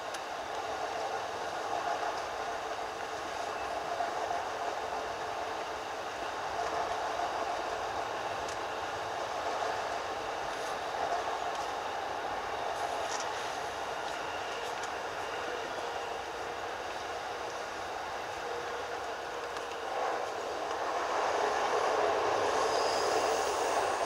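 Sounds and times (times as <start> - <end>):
train wheels rumbling on rail: 0.0 - 24.0.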